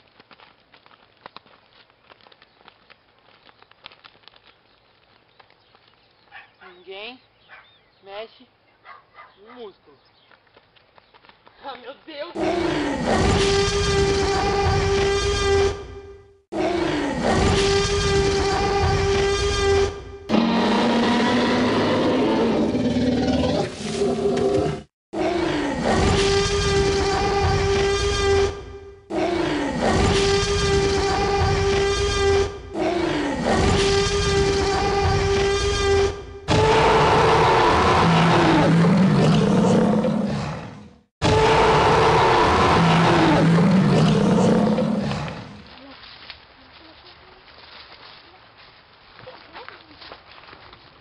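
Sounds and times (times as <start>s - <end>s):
dinosaur roars: 16.6s - 45.6s.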